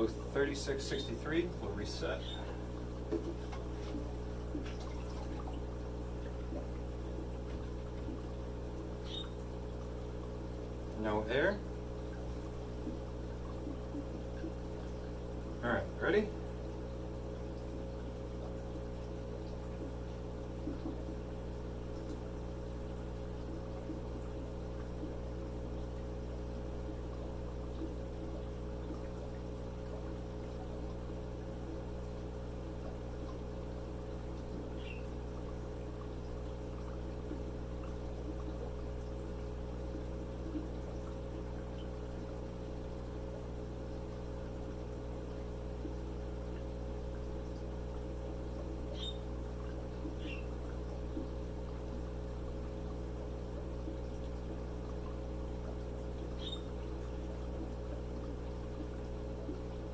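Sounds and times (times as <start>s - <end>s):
air pump humming: 0.0s - 59.9s
air bubbling through water: 1.4s - 15.6s.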